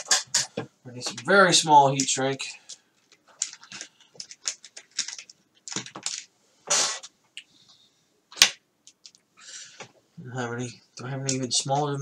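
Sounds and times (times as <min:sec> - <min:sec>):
small parts clicking and rattling: 0:01.9 - 0:06.3, 0:08.8 - 0:09.3.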